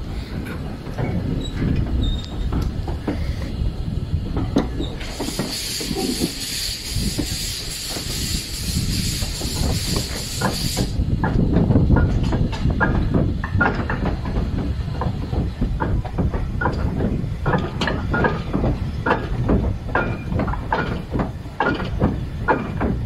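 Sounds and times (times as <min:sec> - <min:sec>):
locomotive wheels rumbling: 0:00.0 - 0:23.0
steam hissing: 0:03.0 - 0:11.6
running gear knocks: 0:11.2 - 0:23.0.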